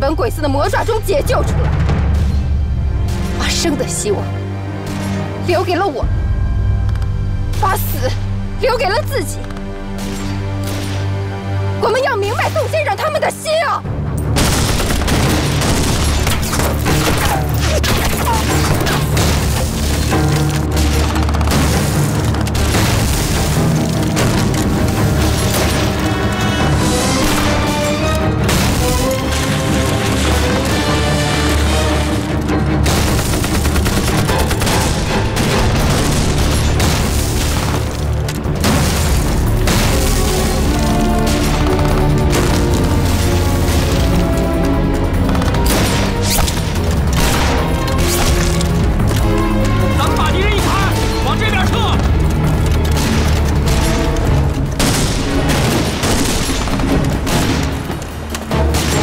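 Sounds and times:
background music: 0:00.0 - 0:59.0
rifle fire: 0:14.3 - 0:26.1, 0:32.8 - 0:44.3, 0:54.7 - 0:59.0
gunfire: 0:14.3 - 0:27.8, 0:28.4 - 0:44.5, 0:45.1 - 0:49.2, 0:50.3 - 0:59.0
explosions: 0:32.8 - 0:44.4.

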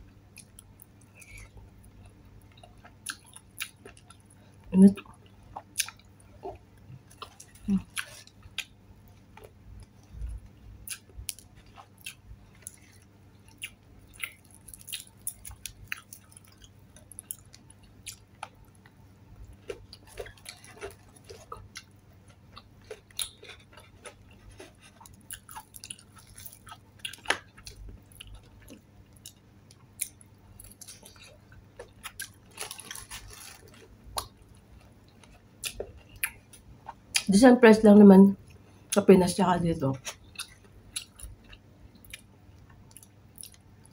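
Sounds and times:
wet chewing: 0:19.6 - 0:29.4.

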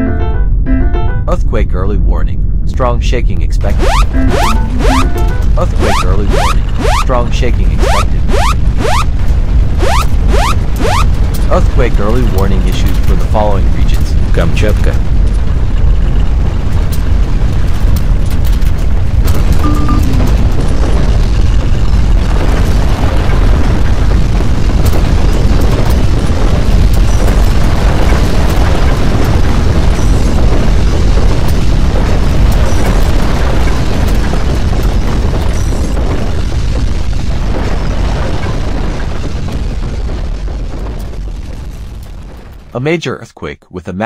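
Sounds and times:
deep earthquake rumble: 0:01.3 - 0:43.0
cracks and rattles: 0:09.1 - 0:19.6, 0:20.2 - 0:42.8.

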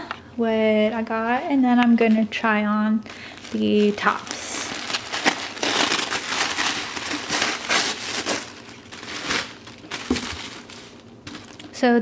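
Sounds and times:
tissue paper rustling and crinkling: 0:03.1 - 0:11.8.

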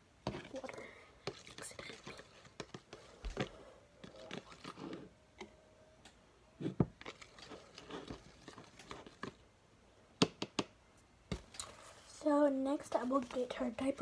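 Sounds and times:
spoon stirring and scraping paste: 0:00.2 - 0:05.5, 0:06.6 - 0:09.5.

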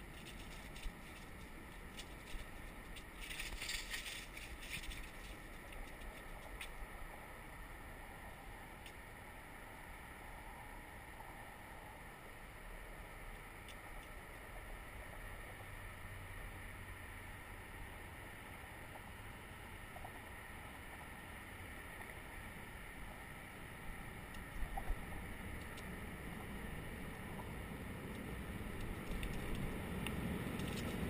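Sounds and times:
bicycle rolling on pavement: 0:00.0 - 0:08.9, 0:18.4 - 0:31.0.

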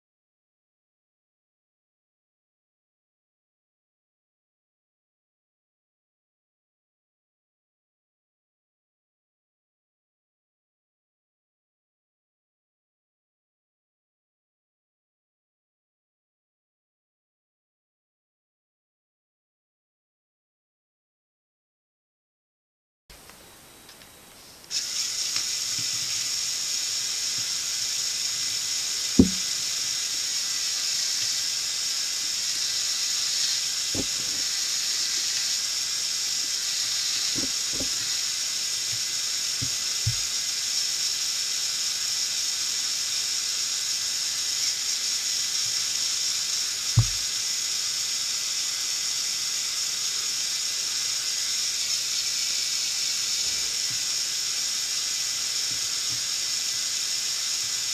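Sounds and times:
high-pitched hiss: 0:23.2 - 0:57.9
short low thumps: 0:29.2 - 0:29.5, 0:47.0 - 0:47.2.

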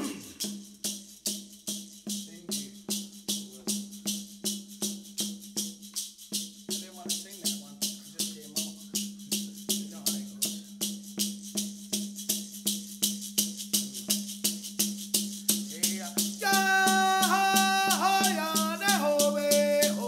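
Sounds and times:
people singing: 0:00.0 - 0:00.5, 0:16.4 - 0:20.0
rattle shaken: 0:00.0 - 0:20.0.

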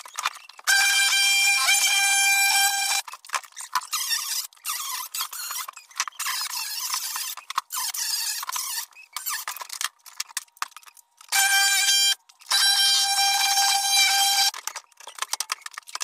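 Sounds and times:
reciprocating saw motor whine: 0:00.7 - 0:03.0.

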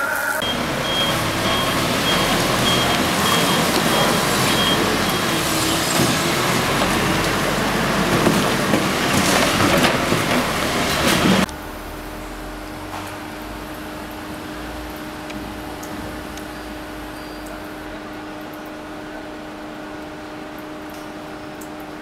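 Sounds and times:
backup alarm beeping: 0:00.4 - 0:06.7
diesel engine running: 0:00.4 - 0:17.1.

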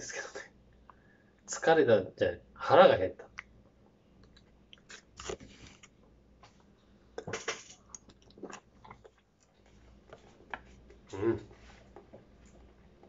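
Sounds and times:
person chewing crunchy food: 0:04.2 - 0:06.0, 0:07.2 - 0:11.4.

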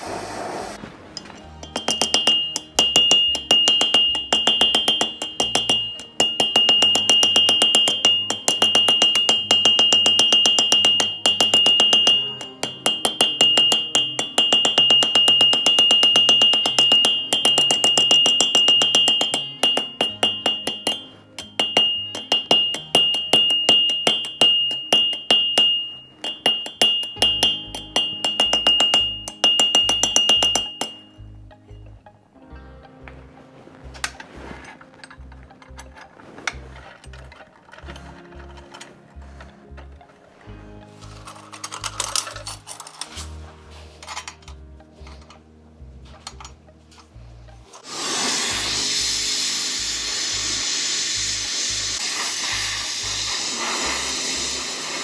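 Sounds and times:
hammer striking metal on anvil: 0:01.2 - 0:31.9.

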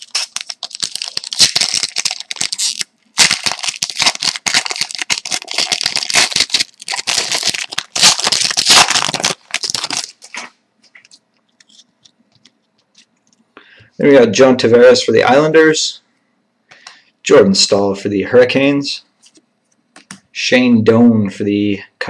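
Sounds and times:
foil wrapper crinkling and tearing: 0:00.0 - 0:11.8.

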